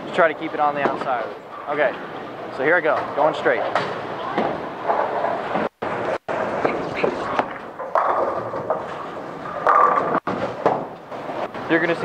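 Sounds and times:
busy bowling alley din: 0.0s - 12.0s
bowling ball crashing into pins: 7.3s - 11.4s.

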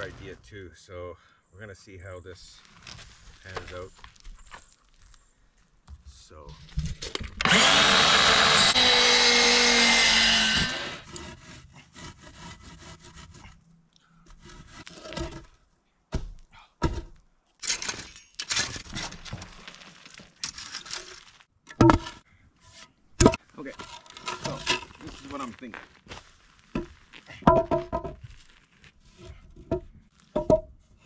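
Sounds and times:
electric saw cutting wood: 7.4s - 11.1s
timbers knocking and thumping: 16.1s - 17.2s, 21.6s - 22.2s, 23.2s - 25.0s, 26.7s - 28.3s, 29.2s - 30.8s.

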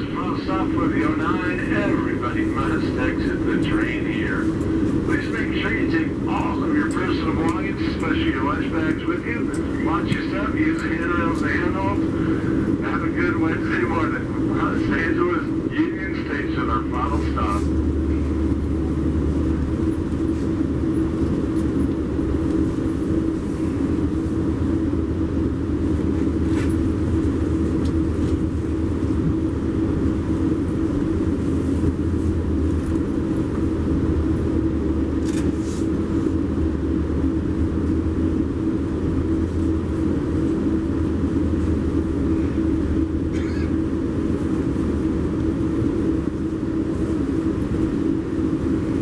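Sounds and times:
constant hum: 0.0s - 49.0s
train coach rumble: 0.0s - 49.0s.

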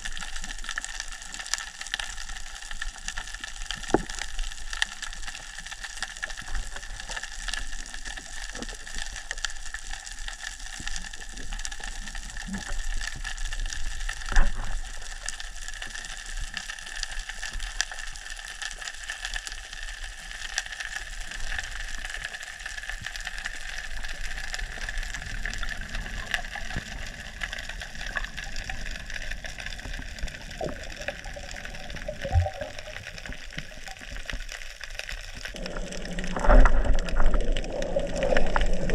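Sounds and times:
fine crackle of tiny clicks: 0.0s - 38.9s
underwater hiss: 35.2s - 38.9s
diver breaking water surface: 35.6s - 38.9s.

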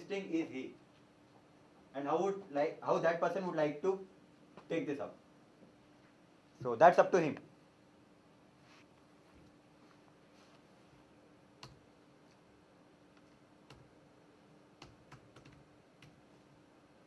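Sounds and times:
computer keyboard clicks: 11.6s - 11.8s, 13.2s - 13.9s, 14.8s - 16.2s.

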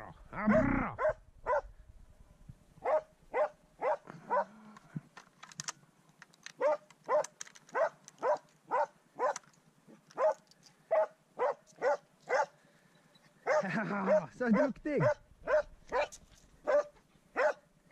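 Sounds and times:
dog barking: 0.5s - 1.7s, 2.8s - 4.6s, 6.6s - 9.4s, 10.2s - 12.6s, 13.4s - 17.6s.

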